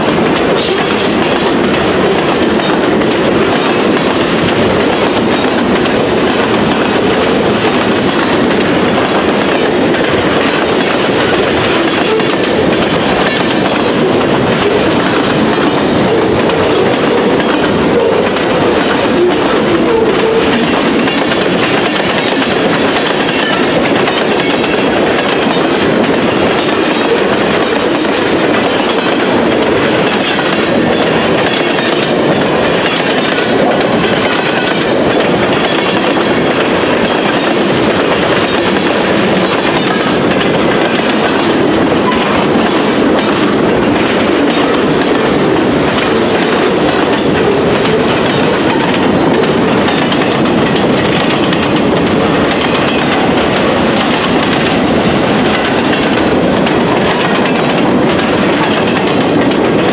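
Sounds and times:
freight train wheels rumbling: 0:00.0 - 0:59.9
wheels clickety-clack: 0:00.0 - 0:59.9.

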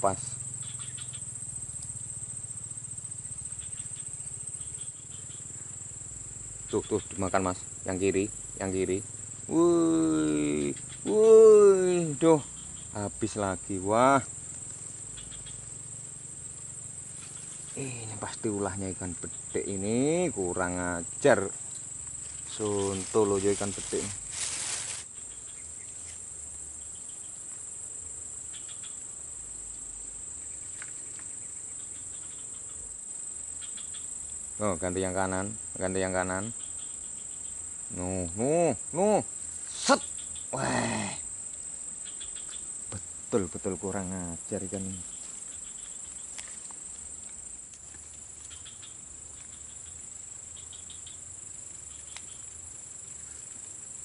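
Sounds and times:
insects trilling: 0:00.0 - 0:54.0
faint clicks: 0:52.1 - 0:52.4.

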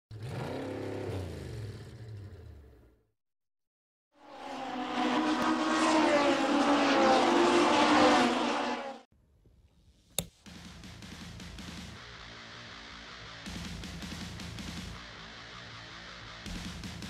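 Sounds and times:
race car engine passing by: 0:04.2 - 0:09.1
sharp click: 0:10.2 - 0:10.4.

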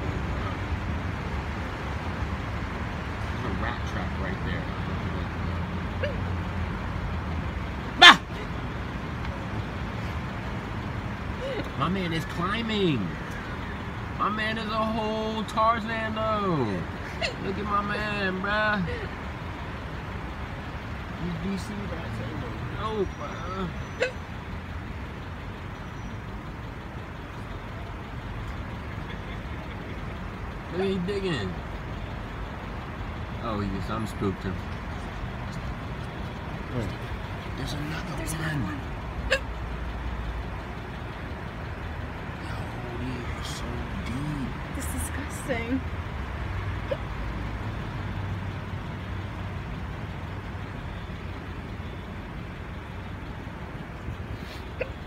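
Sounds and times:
street traffic rumble: 0:00.0 - 0:55.0
vehicle engine idling: 0:00.0 - 0:55.0.

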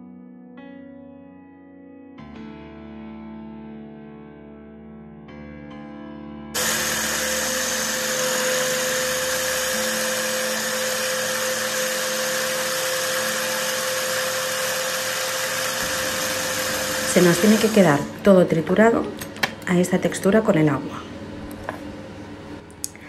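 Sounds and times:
electric chopper motor whirring: 0:06.6 - 0:18.1.

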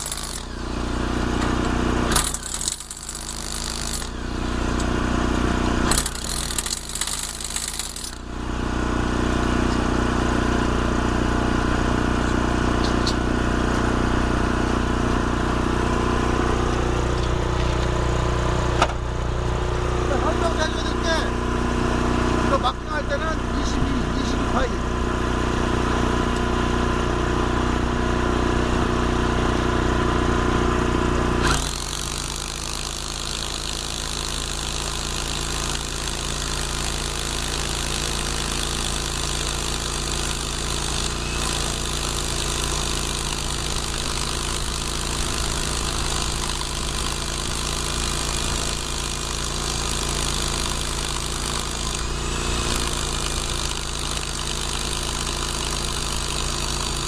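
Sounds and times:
hammer drill boring into concrete: 0:00.0 - 0:05.0, 0:05.8 - 0:08.3, 0:31.4 - 0:57.0
engine-like hum: 0:03.9 - 0:33.8.

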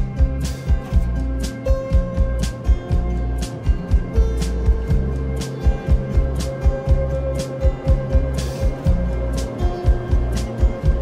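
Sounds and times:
kick drum thumps: 0:00.0 - 0:05.1, 0:05.8 - 0:09.1
held bass notes: 0:00.0 - 0:11.0.

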